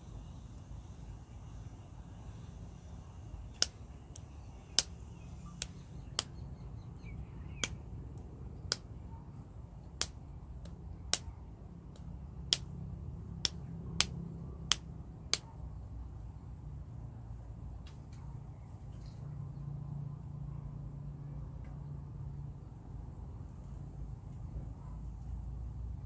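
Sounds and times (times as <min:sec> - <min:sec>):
steady low rumble: 0:00.0 - 0:26.0
sharp short clicks: 0:05.6 - 0:06.4.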